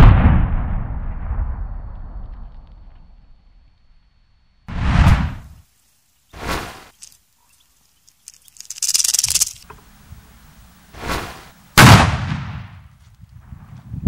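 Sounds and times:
firecracker bang: 0.0 - 2.6, 11.0 - 12.9
fuse hissing: 4.7 - 11.9.

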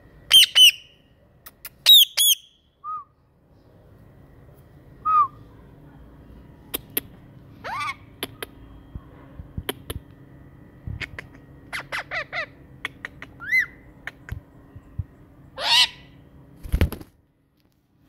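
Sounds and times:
parakeet squawking: 0.3 - 1.0, 7.6 - 8.2, 11.7 - 13.8, 15.6 - 16.2.

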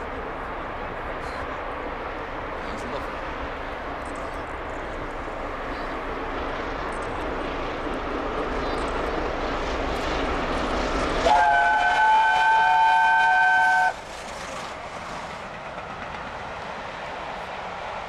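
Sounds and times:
steam locomotive passing at speed: 0.0 - 18.0
steam whistle: 11.2 - 14.0.

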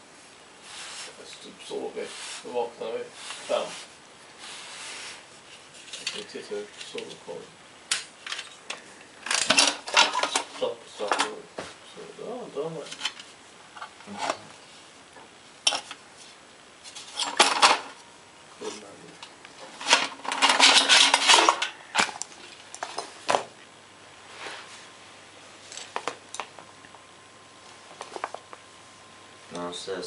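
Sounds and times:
scraping rattle: 19.6 - 21.8.

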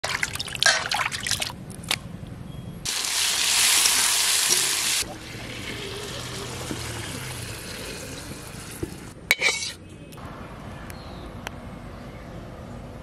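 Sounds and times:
water splashing in steel bowl: 0.0 - 1.6
vegetables sizzling in oil: 2.9 - 9.1.

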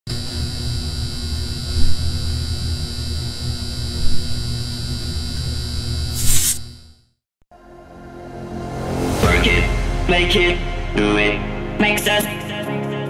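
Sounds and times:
neon sign humming: 0.1 - 7.0.

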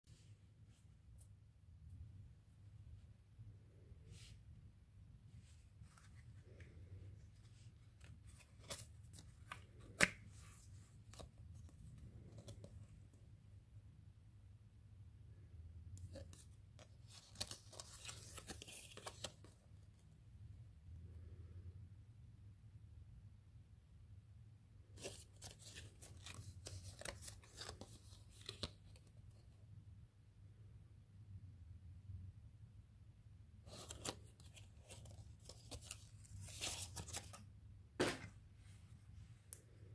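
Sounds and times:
card rustling and crinkling: 5.4 - 12.9, 16.0 - 19.9, 24.9 - 29.5, 33.7 - 38.3.

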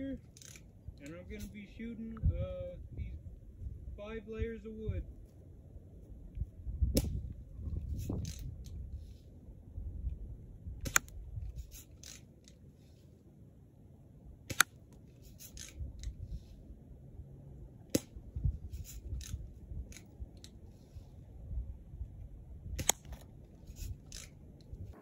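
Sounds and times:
cocking lever clicks: 0.2 - 1.2, 10.8 - 11.2, 12.0 - 12.6, 14.5 - 16.2, 22.8 - 23.3.

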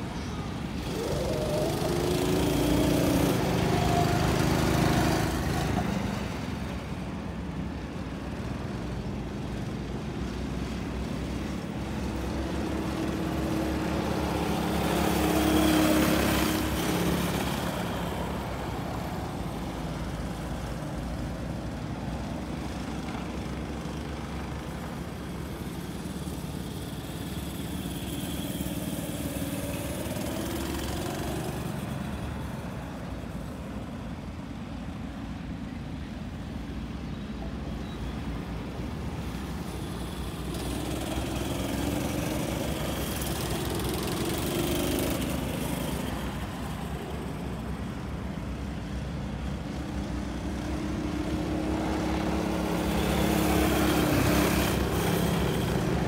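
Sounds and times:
distant karts running: 0.0 - 56.0
go-kart engines passing: 0.0 - 56.0.

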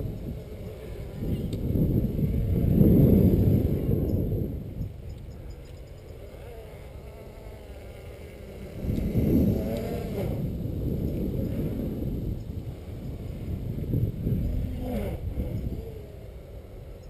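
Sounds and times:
quadcopter motors whirring: 0.0 - 17.0.

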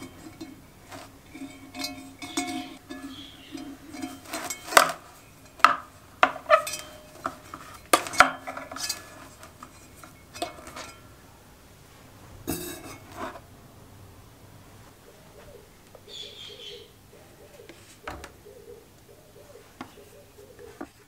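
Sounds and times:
iron pot scraping rattle: 0.0 - 11.2, 12.5 - 13.5
wire clinking on iron pot: 0.0 - 11.2, 12.5 - 13.4.

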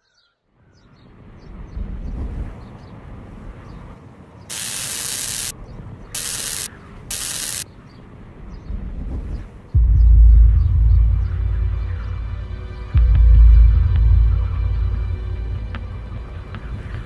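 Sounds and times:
sharp hissing bursts: 4.5 - 5.5, 6.2 - 7.6
low dark rumble: 9.8 - 16.4.

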